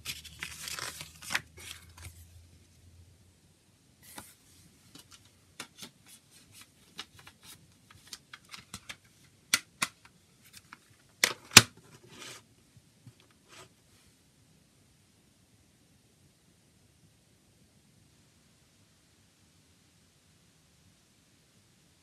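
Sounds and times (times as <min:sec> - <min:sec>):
plastic packaging crinkling: 0:00.0 - 0:02.2.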